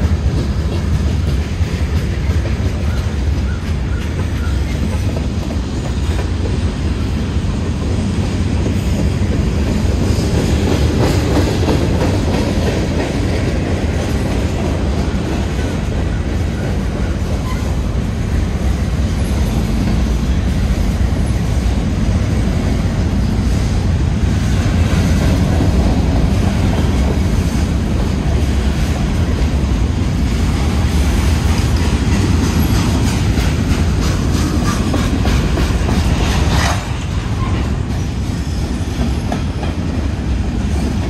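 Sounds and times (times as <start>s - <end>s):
freight train wheels rumbling on rail: 0.0s - 41.0s
wheels clicking over rail joints: 24.6s - 41.0s.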